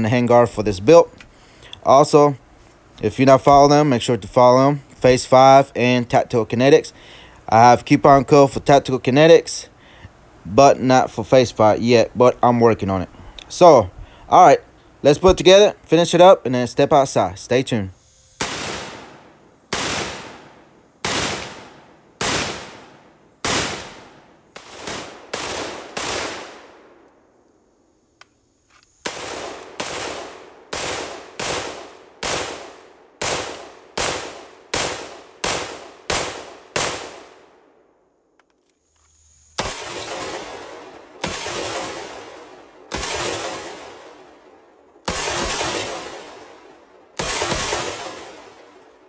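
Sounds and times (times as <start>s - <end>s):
rifle shots with ringing echo: 18.2s - 27.5s, 29.0s - 38.1s, 39.6s - 49.0s.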